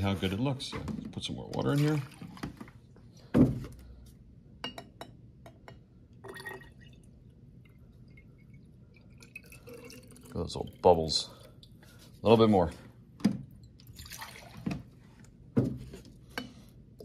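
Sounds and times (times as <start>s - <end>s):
water pouring into glass bottle: 6.2s - 11.0s, 13.6s - 14.6s.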